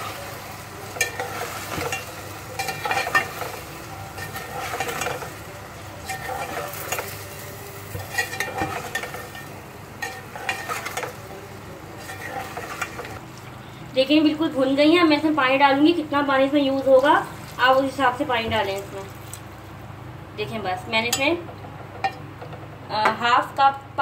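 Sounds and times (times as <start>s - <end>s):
food sizzling in oil: 0.0s - 13.5s
metal spoon scraping a pot: 1.0s - 3.6s, 4.2s - 5.4s, 6.0s - 7.3s, 7.9s - 11.2s, 12.0s - 13.2s.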